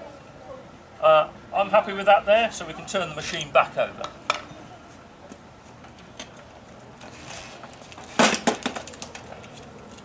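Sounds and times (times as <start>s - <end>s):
lawnmower clattering on paving: 7.0s - 10.0s.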